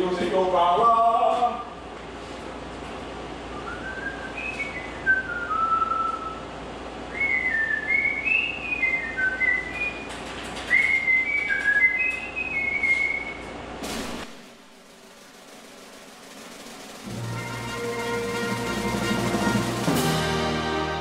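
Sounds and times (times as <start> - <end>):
man whistling a melody: 3.5 - 6.5, 7.1 - 13.5.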